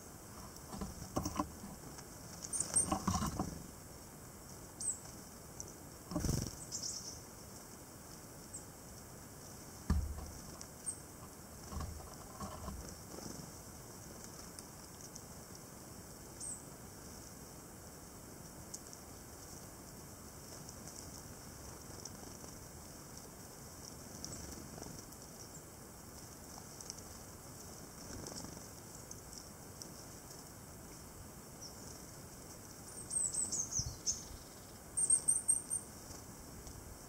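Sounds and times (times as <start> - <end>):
wing flutters and rustles: 0.0 - 37.0
thin high bird calls: 2.4 - 3.6, 4.8 - 7.3, 32.8 - 36.0.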